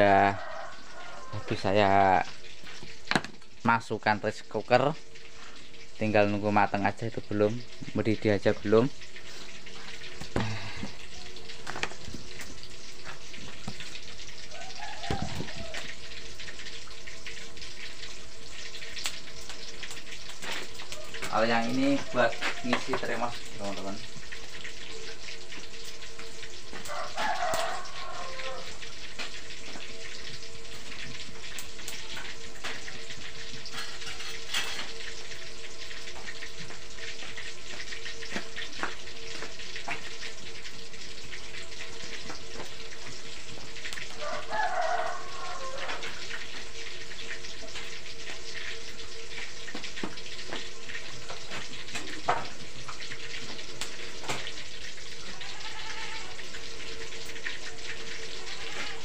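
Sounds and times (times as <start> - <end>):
chicken calling: 0.0 - 1.5, 14.4 - 16.1, 26.9 - 28.8, 44.2 - 46.3, 55.2 - 56.6
tofu sizzling in hot oil: 0.0 - 59.0.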